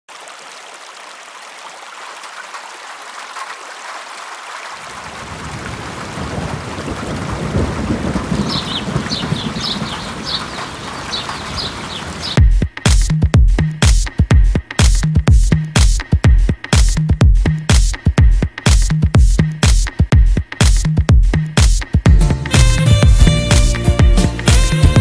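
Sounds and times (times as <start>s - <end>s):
steady rain: 0.1s - 12.4s
deep rolling thunder: 5.2s - 10.8s
electronic dance music: 12.4s - 25.0s.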